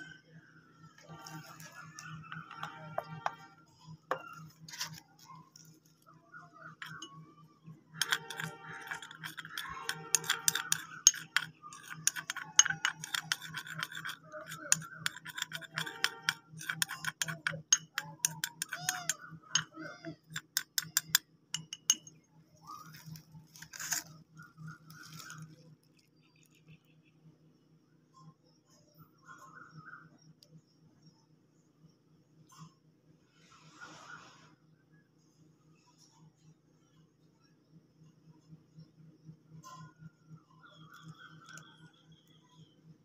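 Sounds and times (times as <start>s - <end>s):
metal cutlery clinking and scraping: 8.0s - 22.1s.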